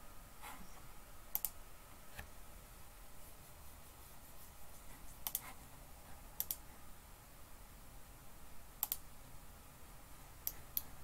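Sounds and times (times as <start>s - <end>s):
faint low hum: 0.0s - 11.0s
computer mouse clicking: 1.3s - 1.6s, 5.2s - 5.5s, 6.4s - 6.6s, 8.8s - 9.1s, 10.4s - 11.0s.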